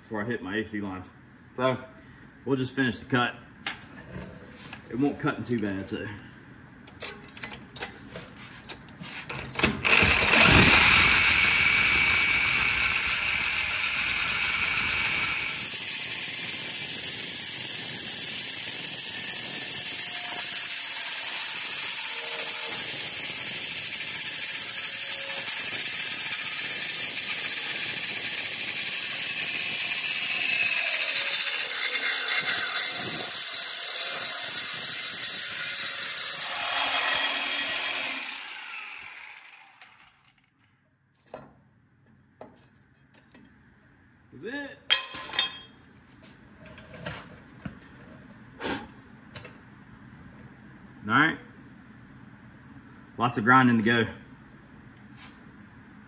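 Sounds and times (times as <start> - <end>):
angle grinder cutting steel: 9.8 - 40.3.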